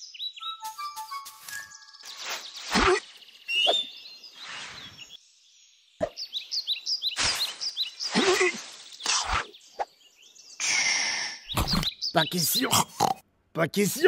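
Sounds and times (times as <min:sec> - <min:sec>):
leaves swishing and plopping: 0:07.2 - 0:09.5.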